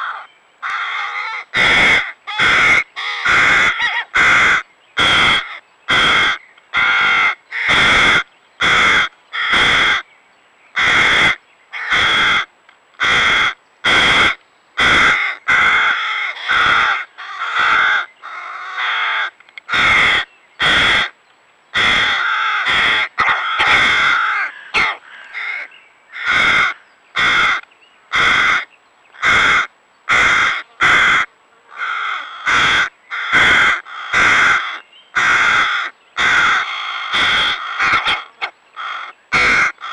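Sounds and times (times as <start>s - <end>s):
young crows cawing harshly: 0.0s - 10.1s, 10.8s - 21.2s, 21.8s - 39.9s.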